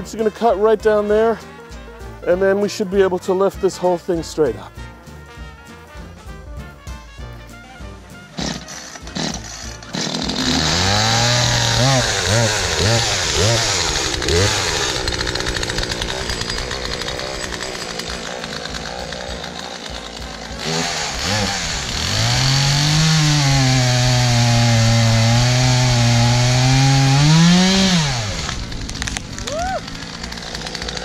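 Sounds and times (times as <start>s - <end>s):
chainsaw engine revving: 8.2s - 31.0s.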